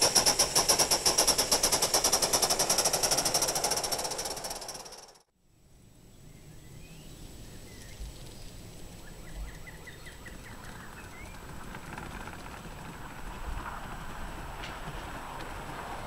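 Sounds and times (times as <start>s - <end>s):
outdoor background noise: 0.0s - 16.0s
small birds chirping: 6.2s - 11.5s.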